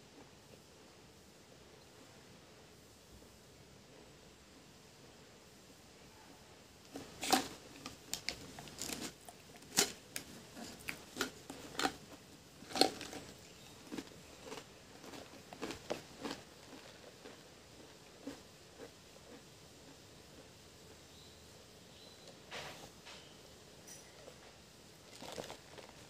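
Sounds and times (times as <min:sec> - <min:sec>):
crisps crunching as chewed: 0:06.9 - 0:20.6, 0:25.0 - 0:26.0.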